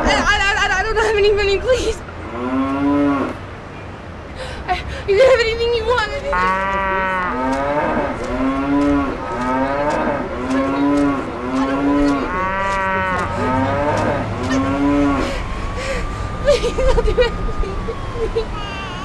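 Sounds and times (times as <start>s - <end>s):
cow mooing: 6.3s - 15.2s.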